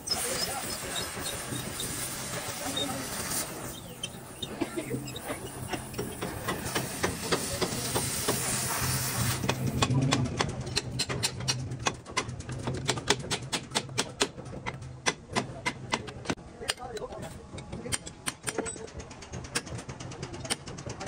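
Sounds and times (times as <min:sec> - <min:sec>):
sharp metal knocks: 0:09.5 - 0:19.8.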